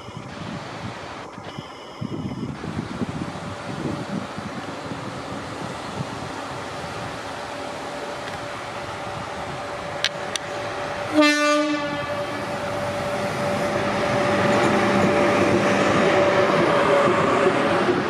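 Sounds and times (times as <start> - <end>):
train rumble: 0.0 - 18.0
train horn blast: 11.1 - 15.0.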